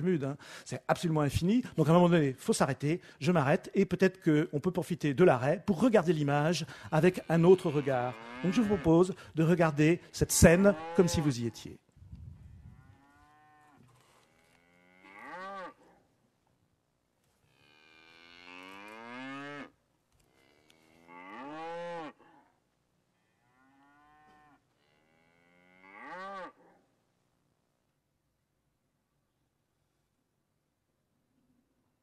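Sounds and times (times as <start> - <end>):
cattle mooing: 6.9 - 9.0, 10.6 - 11.3, 12.7 - 15.9, 17.6 - 22.4, 23.3 - 26.6.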